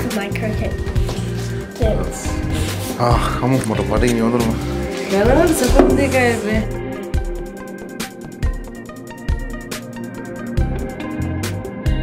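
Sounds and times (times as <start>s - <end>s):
music with steady beat: 0.0s - 12.0s.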